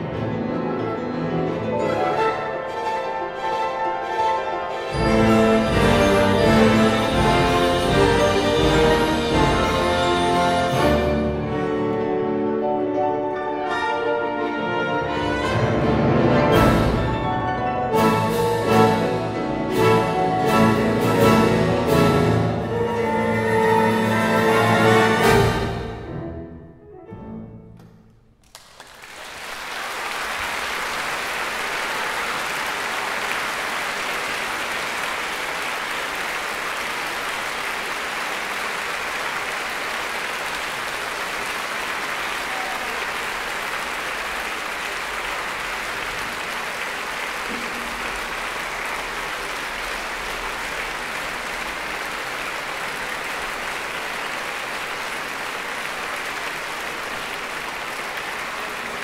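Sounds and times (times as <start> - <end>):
large audience applauding: 4.9 - 11.5, 28.4 - 59.0.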